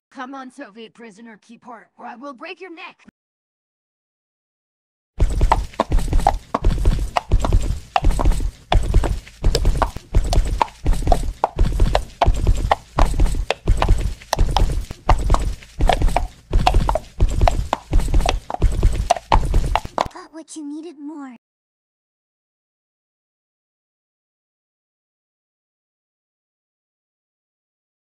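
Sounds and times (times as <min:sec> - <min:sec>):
horse hooves clip-clopping: 0:05.2 - 0:20.1.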